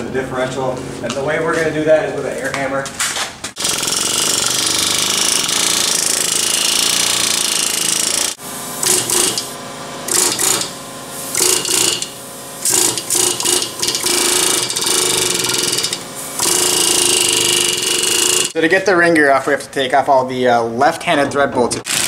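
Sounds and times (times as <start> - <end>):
pneumatic air hammer: 3.5 - 18.6.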